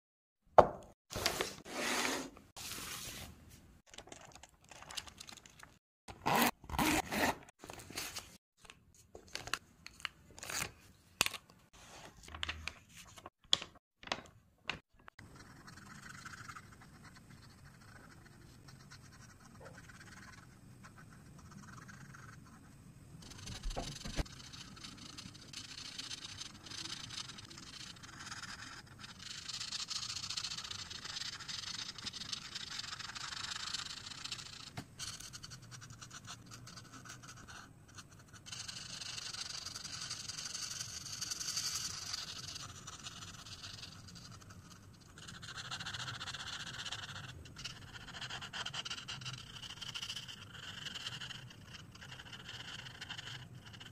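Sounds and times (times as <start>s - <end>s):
marker scratching on paper: 15.2s - 53.9s.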